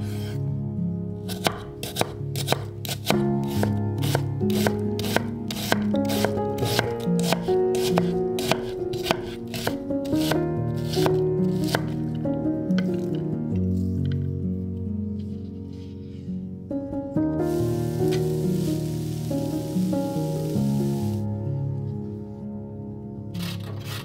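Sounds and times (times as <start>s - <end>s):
background music: 0.0s - 24.0s
knife chopping on wooden board: 1.3s - 10.4s.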